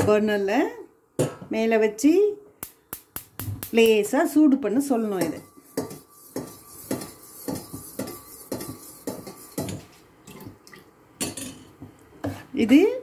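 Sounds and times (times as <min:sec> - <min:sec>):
spatula scraping a frying pan: 0:05.0 - 0:10.1, 0:12.2 - 0:12.7.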